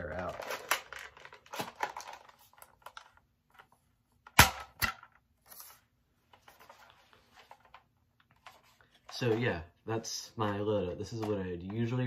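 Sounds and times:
plastic clicks and handling noise: 0:10.4 - 0:12.0.

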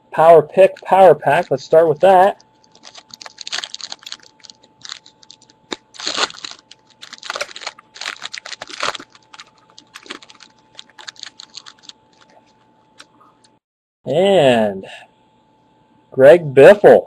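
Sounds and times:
wrapper crackling and rustling: 0:01.4 - 0:13.1.

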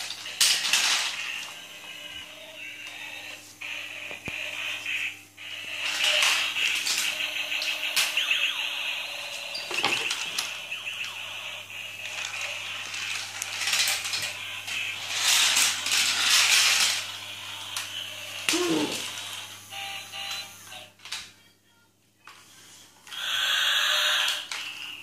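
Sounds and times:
toy gear mechanism whirring: 0:00.0 - 0:21.2, 0:23.1 - 0:25.0.

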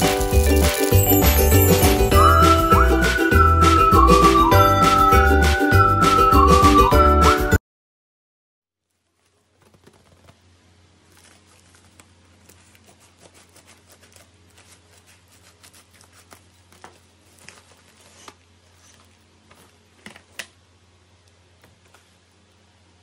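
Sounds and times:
plastic packaging crinkling: 0:00.0 - 0:02.0, 0:08.8 - 0:20.4.

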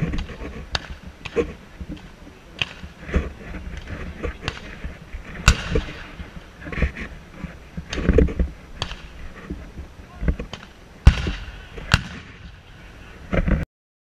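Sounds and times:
faint sharp cracks: 0:00.1 - 0:04.8, 0:07.9 - 0:09.6, 0:10.2 - 0:12.5
cannon boom with rolling echo: 0:05.4 - 0:06.2, 0:11.0 - 0:12.6.

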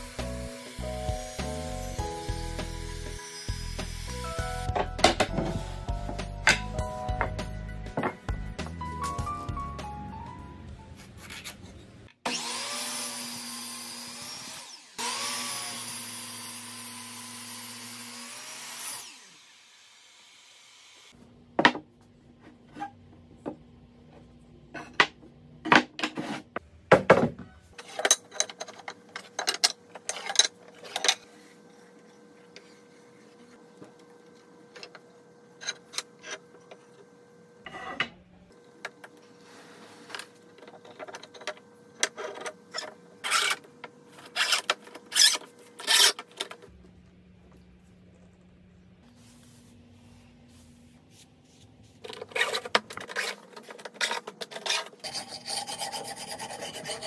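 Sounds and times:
electric power tool on wood: 0:00.0 - 0:04.3, 0:12.2 - 0:21.2.

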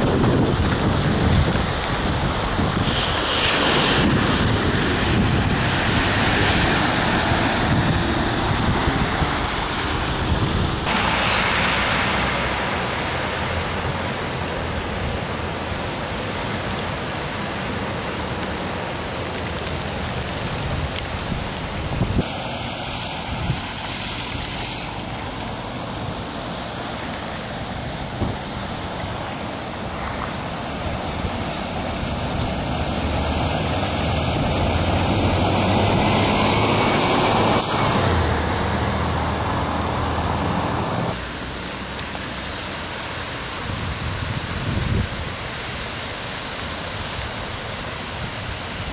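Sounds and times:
wind buffeting microphone: 0:00.0 - 0:10.9, 0:19.7 - 0:22.3, 0:43.6 - 0:45.5
bus passing: 0:00.0 - 0:18.2, 0:22.2 - 0:42.9
vehicles splashing through water: 0:00.0 - 0:48.9.

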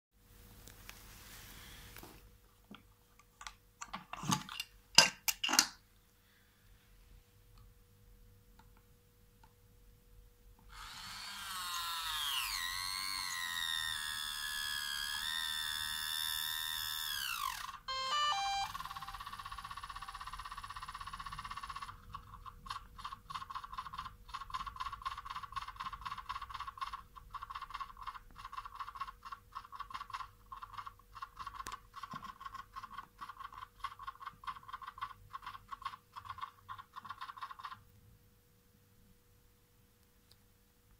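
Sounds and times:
wavering electronic whine: 0:10.8 - 0:21.9
steady high tone: 0:17.2 - 0:21.5
stepped beeps: 0:17.9 - 0:20.2.

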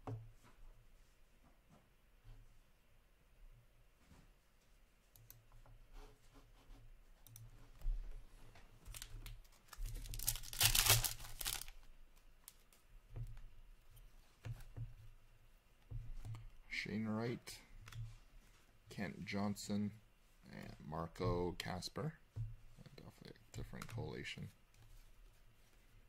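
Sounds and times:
cards and packs rustling: 0:08.8 - 0:12.8
foil card pack tearing: 0:09.8 - 0:11.8.

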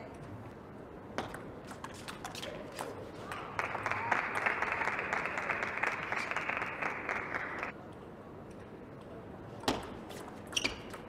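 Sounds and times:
crowd applauding: 0:03.2 - 0:07.7.

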